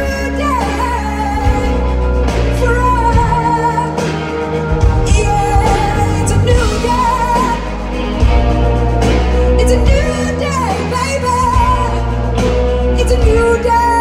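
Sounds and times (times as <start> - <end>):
pop-rock song with female vocal: 0.0 - 14.0.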